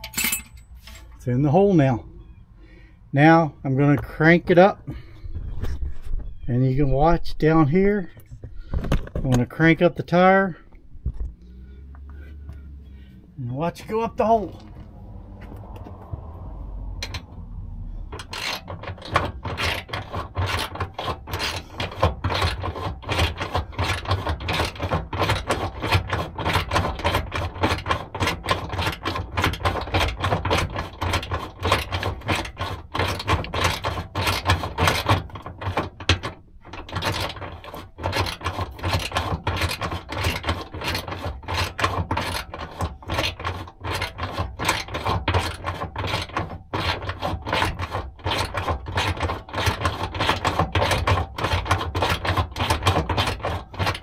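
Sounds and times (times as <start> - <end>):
hand-cranked hoist clicking: 18.0 - 54.0.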